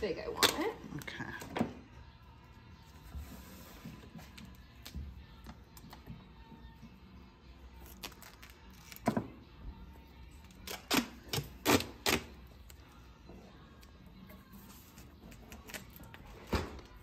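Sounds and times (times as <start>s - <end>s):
duct tape ripping off roll: 7.8s - 9.2s, 10.6s - 12.5s.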